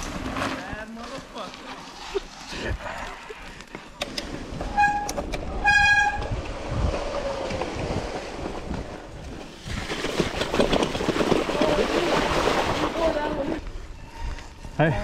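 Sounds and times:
tyres rumbling on dirt: 0.0 - 3.6, 4.2 - 13.7
bike rolling through rocky creek: 0.0 - 15.0
bike brake squeals: 4.7 - 6.3.

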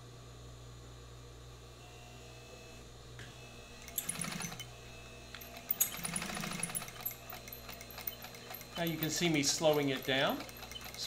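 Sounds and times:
steady low hum: 0.0 - 11.0
sewing machine stitching: 3.8 - 4.7, 5.4 - 11.0.

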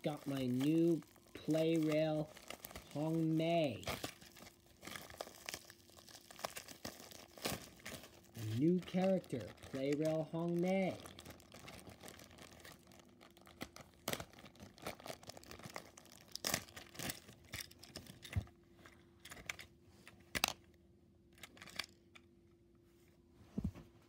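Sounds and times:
plastic bag crinkling and tearing: 0.0 - 18.3.

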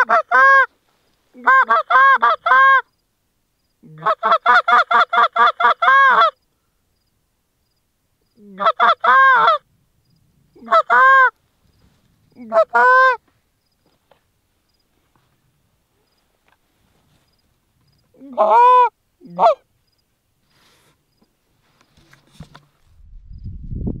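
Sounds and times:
goose honking: 0.0 - 0.7, 1.4 - 2.9, 4.0 - 6.4, 8.5 - 9.6, 10.6 - 11.4, 12.4 - 13.3, 18.2 - 19.6.

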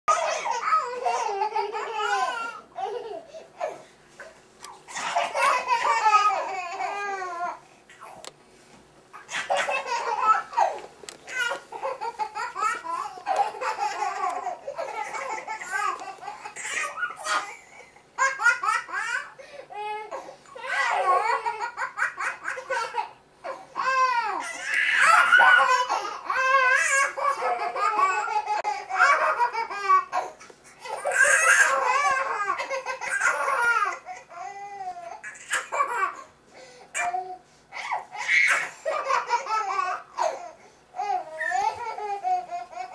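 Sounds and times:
toddlers laughing hysterically: 0.1 - 3.7, 4.9 - 7.3, 9.2 - 19.4, 20.6 - 23.2, 23.8 - 34.3, 37.8 - 40.4, 41.3 - 42.9.

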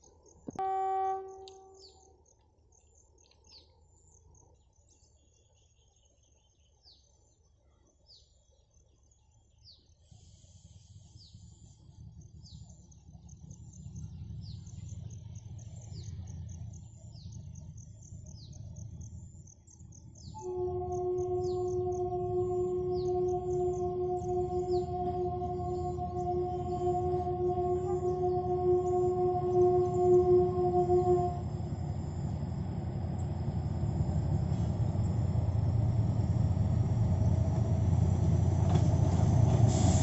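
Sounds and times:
diesel locomotive engine rumble: 0.1 - 2.1, 10.6 - 40.0
locomotive horn: 0.5 - 2.1, 20.3 - 40.0.

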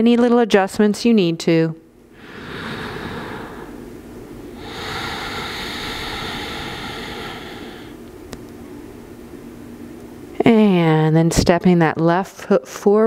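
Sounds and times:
woman breathing deeply: 2.1 - 8.0.

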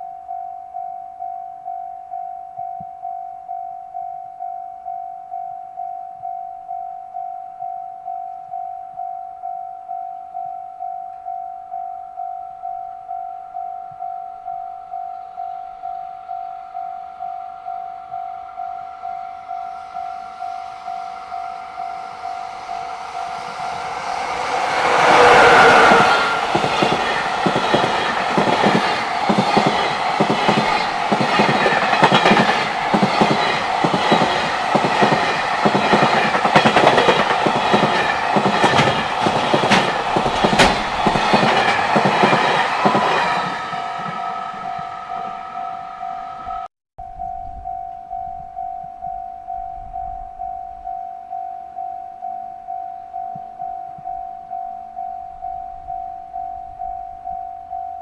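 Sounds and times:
level-crossing alarm dinging: 0.0 - 58.0
train horn blast: 19.6 - 27.2
train wheels clicking over rail joints: 22.5 - 45.0.

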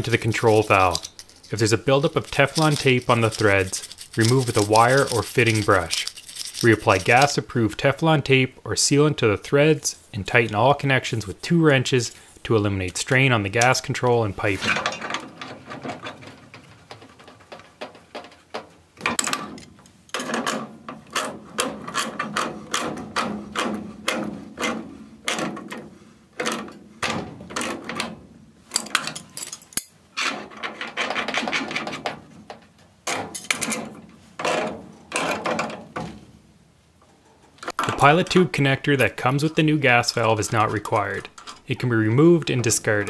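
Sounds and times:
pliers clicking and scraping on metal: 0.0 - 7.4, 28.7 - 32.1, 40.5 - 41.7.

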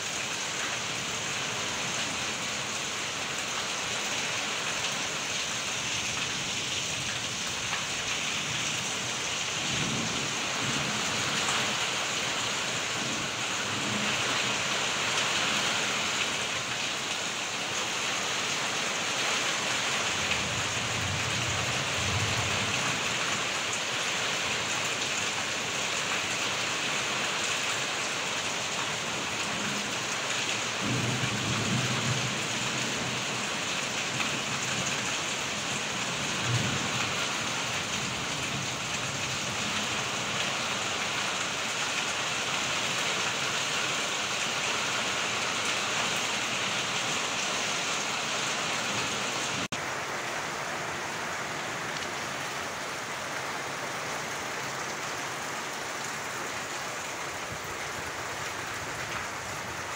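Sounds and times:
heavy rain on a tin roof: 0.0 - 59.9.

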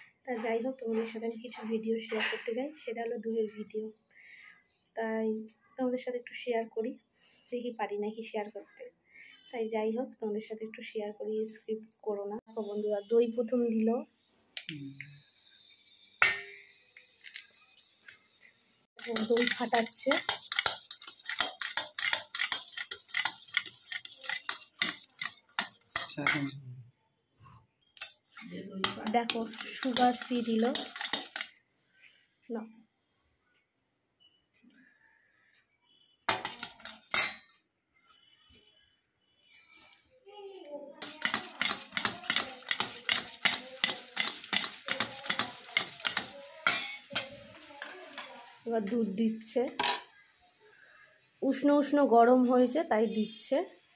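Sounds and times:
spoon beating in metal bowl: 16.2 - 16.8, 19.0 - 26.5, 28.0 - 31.6, 36.3 - 37.5, 41.0 - 48.5.

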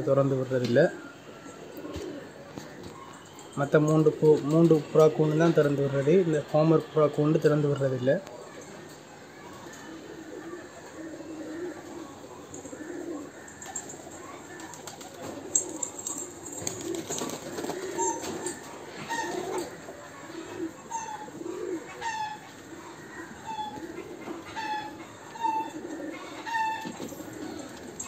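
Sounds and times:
pigeons cooing: 0.0 - 28.0
wings flapping: 13.6 - 19.7.

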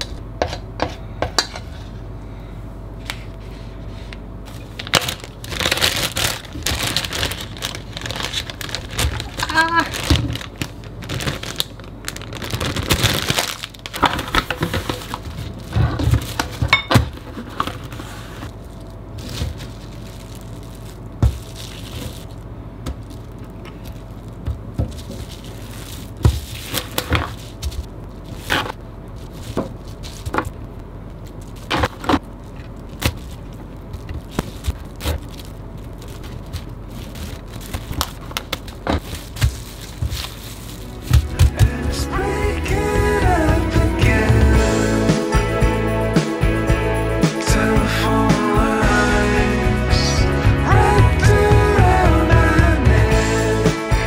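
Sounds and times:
cling film rustling: 4.4 - 41.7
plastic bag crinkling: 4.5 - 42.0.

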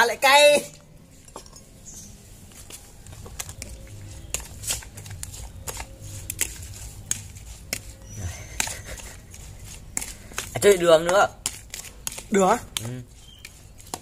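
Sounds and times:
spoon tossing fruit in bowl: 3.0 - 14.0.

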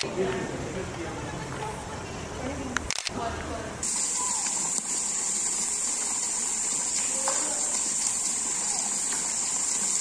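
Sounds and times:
fountain water splashing: 3.8 - 10.0.

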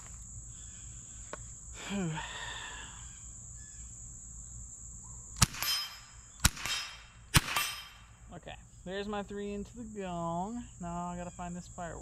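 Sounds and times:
insects droning: 0.0 - 12.0
rifle shot: 5.4 - 8.1.

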